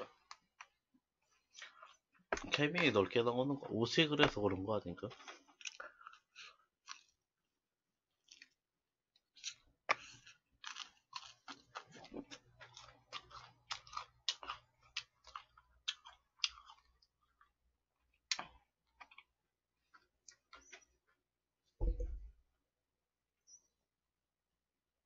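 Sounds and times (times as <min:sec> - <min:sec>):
crunchy chewing of fried chicken: 0:04.4 - 0:21.1.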